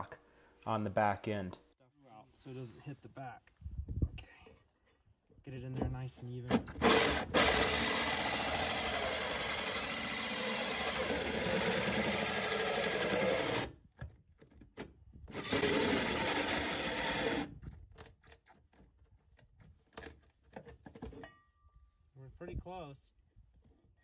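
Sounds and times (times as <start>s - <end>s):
drill with hole saw cutting: 6.7s - 13.7s, 15.3s - 17.5s.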